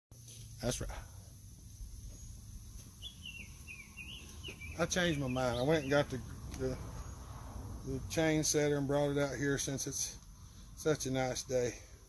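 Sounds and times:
light hiss: 0.2 - 5.3.

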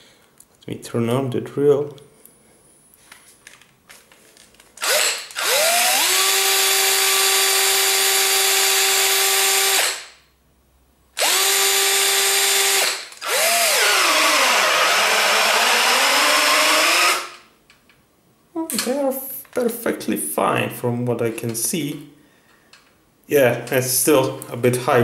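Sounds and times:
cordless drill motor running: 4.8 - 10.1, 11.2 - 17.4.

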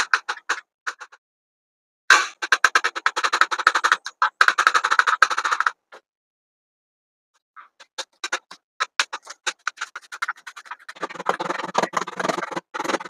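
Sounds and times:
knife chopping on plastic board: 7.8 - 13.0.

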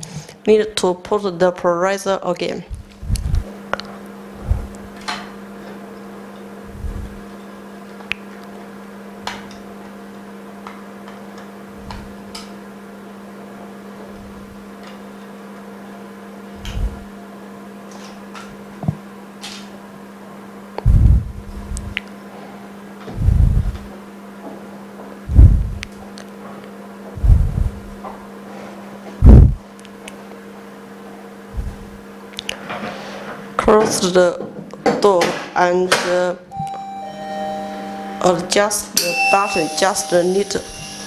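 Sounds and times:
machine hum: 2.6 - 19.3, 19.9 - 29.8, 36.5 - 41.0.

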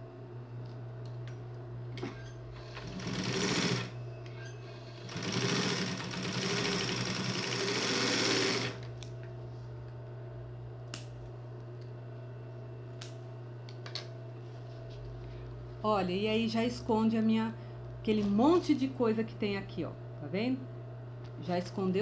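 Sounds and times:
steady low hum: 0.0 - 22.0
sewing machine stitching: 2.6 - 4.0, 4.9 - 8.8.

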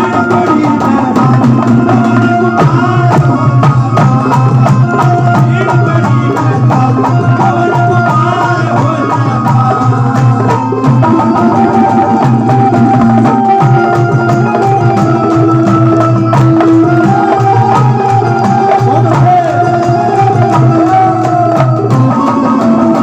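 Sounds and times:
held melody line: 0.0 - 23.0
steady drum beat: 0.0 - 23.0.

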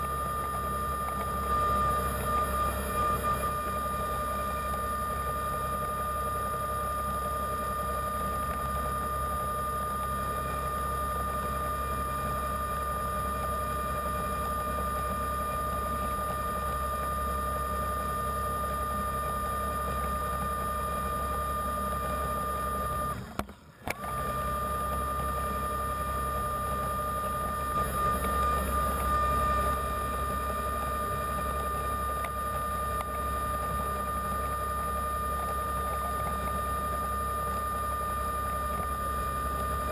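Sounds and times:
electric motor whining underwater: 0.0 - 6.2, 23.9 - 39.9.

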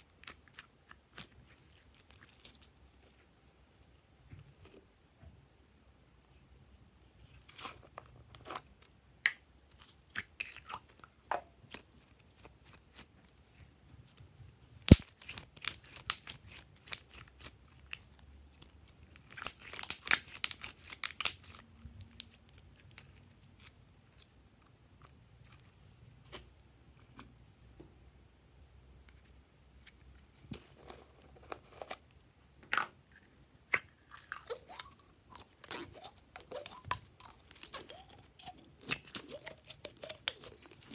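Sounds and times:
sticky wet slime crackling: 0.0 - 3.5, 14.8 - 26.6, 33.7 - 40.9.

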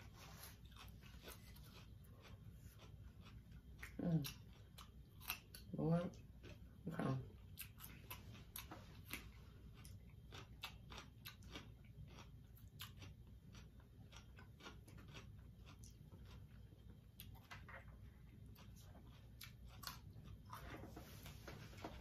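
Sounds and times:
people chewing and smacking: 0.0 - 22.0.

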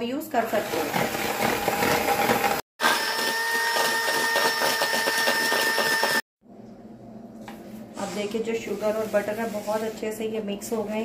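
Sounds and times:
electric mixer whining: 0.4 - 6.2.

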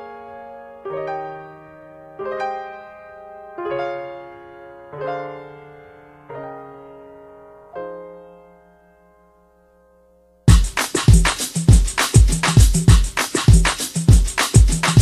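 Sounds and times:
slow piano chords: 0.0 - 10.5.

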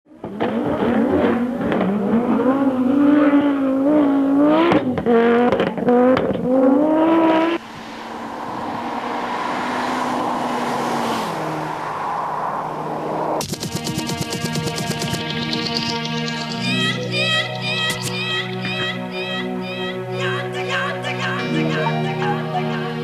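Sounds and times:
car engine revving hard: 0.1 - 12.1.

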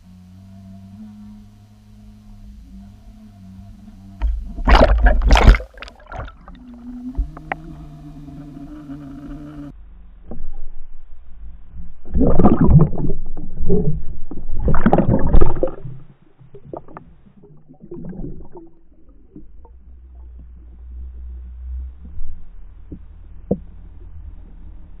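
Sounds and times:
underwater water rush: 0.0 - 9.5, 12.0 - 21.6
muffled underwater thumps: 4.2 - 7.8.

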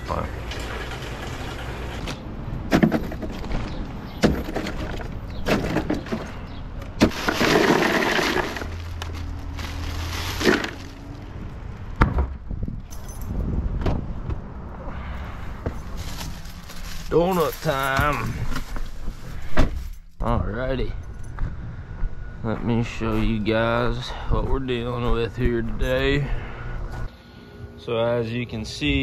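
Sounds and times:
plastic bottles knocking into cooler: 4.2 - 6.3, 7.0 - 8.8, 10.3 - 10.9
ice cubes clattering against plastic: 7.0 - 11.0.

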